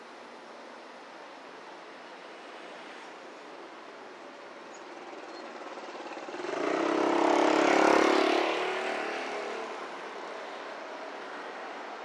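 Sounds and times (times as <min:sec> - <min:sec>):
vehicle engine passing by: 0:05.7 - 0:10.0.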